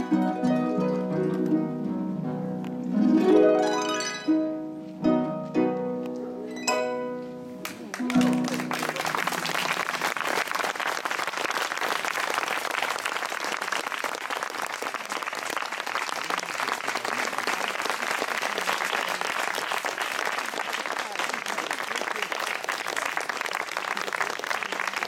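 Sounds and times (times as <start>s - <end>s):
harp notes: 0.0s - 8.7s
audience applause: 7.6s - 25.0s.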